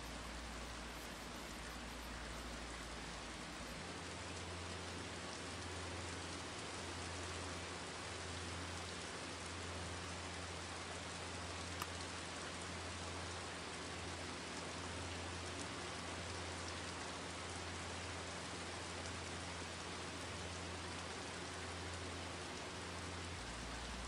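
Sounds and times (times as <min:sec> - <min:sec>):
low hum: 0:00.0 - 0:07.6
rain-like hiss: 0:00.0 - 0:24.0
faint tick: 0:11.6 - 0:12.1.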